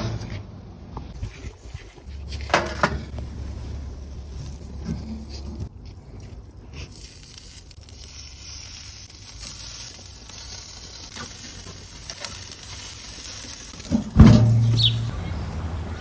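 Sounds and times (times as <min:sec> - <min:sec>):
chicken sizzling on grill: 0:02.8 - 0:15.2.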